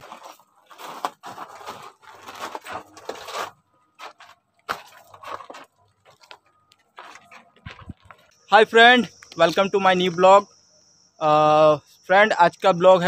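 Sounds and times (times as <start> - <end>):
footsteps crunching on gravel: 0.0 - 8.4.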